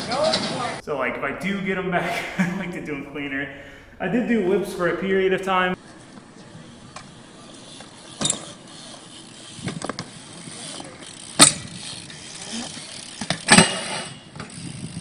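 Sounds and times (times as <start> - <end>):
bike mechanical rattle: 5.8 - 15.0
bike landing impacts on concrete: 6.9 - 15.0.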